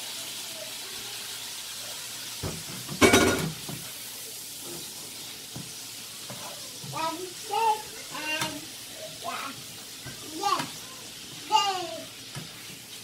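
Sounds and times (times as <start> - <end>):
shrimp sizzling in frying pan: 0.0 - 13.0
spoon clanking against pan: 2.9 - 3.7.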